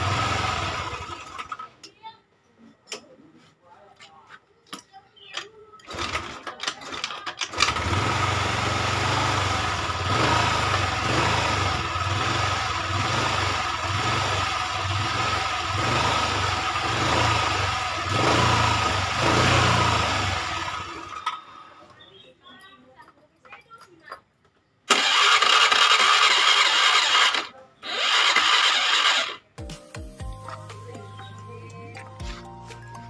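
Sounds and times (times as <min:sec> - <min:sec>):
scooter engine running: 0:00.0 - 0:01.6, 0:05.9 - 0:21.3, 0:24.9 - 0:29.4.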